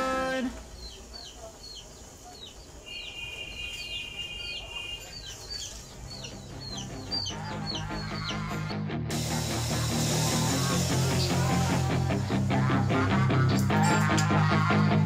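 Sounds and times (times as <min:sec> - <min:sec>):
bird chirping: 0:00.0 - 0:08.8.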